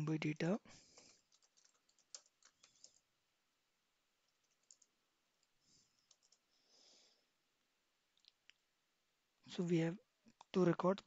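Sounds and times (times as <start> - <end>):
keyboard clicks: 1.0 - 3.0, 4.3 - 6.4.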